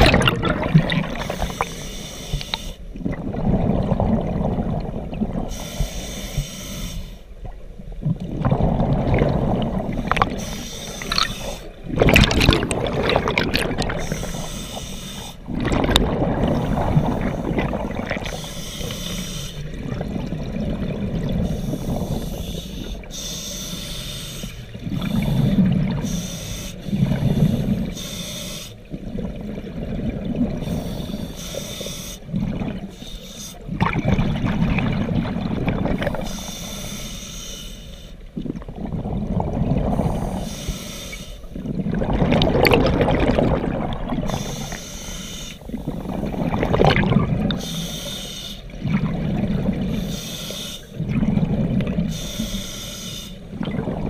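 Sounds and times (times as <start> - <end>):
exhaled bubbles rushing: 0.0 - 1.7, 3.0 - 5.5, 8.0 - 14.5, 15.4 - 18.4, 19.7 - 22.1, 24.8 - 26.0, 28.9 - 30.6, 32.3 - 32.9, 33.7 - 36.3, 38.4 - 40.2, 41.6 - 44.6, 45.7 - 47.6, 48.7 - 50.0, 51.0 - 52.1, 53.5 - 54.0
scuba regulator breathing hiss: 1.2 - 2.9, 5.5 - 7.3, 10.4 - 11.8, 14.0 - 15.5, 16.5 - 19.7, 21.4 - 28.8, 30.6 - 33.7, 36.1 - 38.3, 39.9 - 41.5, 44.3 - 45.9, 47.6 - 48.8, 49.9 - 51.0, 52.1 - 53.6.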